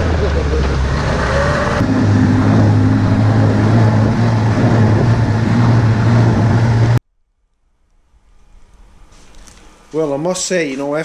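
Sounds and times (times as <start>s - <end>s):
snowmobile engine running: 0.0s - 7.0s
snowmobile track noise: 0.0s - 7.0s.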